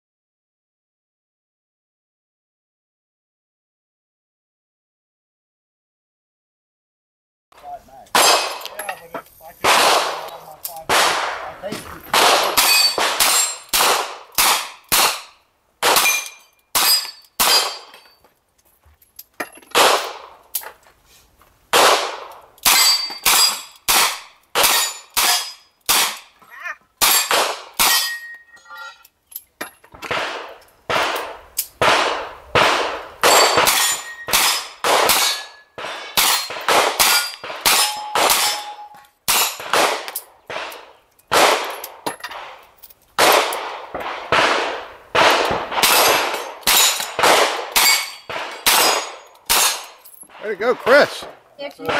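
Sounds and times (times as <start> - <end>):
steel target clanging: 12.1 - 13.7, 27.0 - 29.0, 33.2 - 39.7, 45.8 - 51.2.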